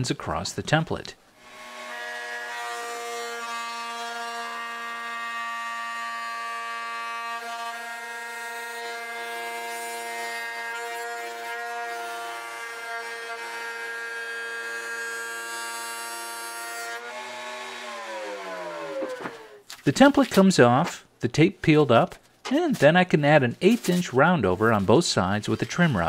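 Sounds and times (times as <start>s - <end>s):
router whining cutting wood: 1.5s - 19.7s.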